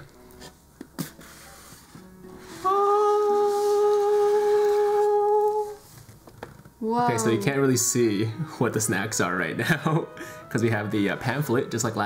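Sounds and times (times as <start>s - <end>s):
person singing a long note: 2.6s - 5.8s.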